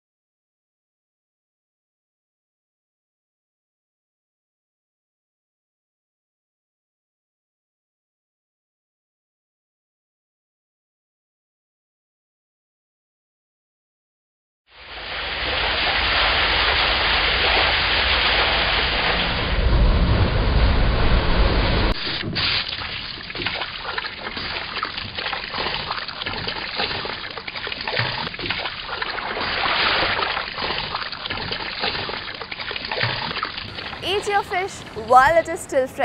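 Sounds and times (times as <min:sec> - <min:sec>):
waves washing with low rumble: 0:14.8 - 0:23.5
water splashing and sloshing: 0:14.8 - 0:35.7.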